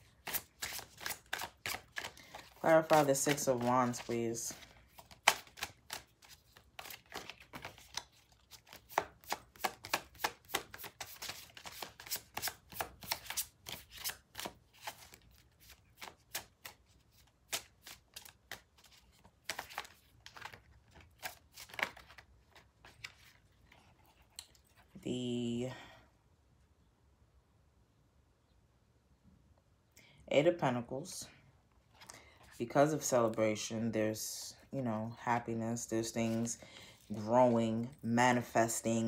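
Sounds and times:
cards being shuffled: 0.0s - 24.9s.

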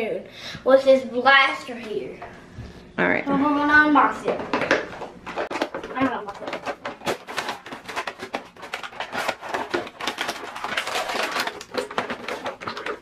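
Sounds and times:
plastic packaging crinkling: 4.2s - 13.0s.

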